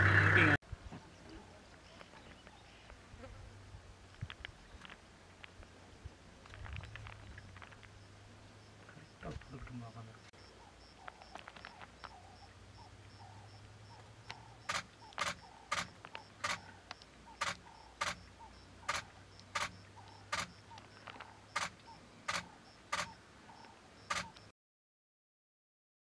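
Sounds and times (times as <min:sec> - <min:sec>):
camera shutter clicking: 0:14.7 - 0:16.7, 0:17.4 - 0:18.2, 0:18.9 - 0:20.5, 0:21.5 - 0:23.2, 0:24.1 - 0:24.4.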